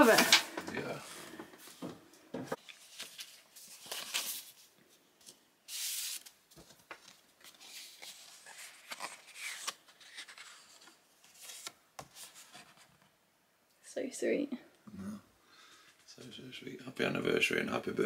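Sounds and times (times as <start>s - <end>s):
paper rustling and scraping: 2.6s - 12.9s.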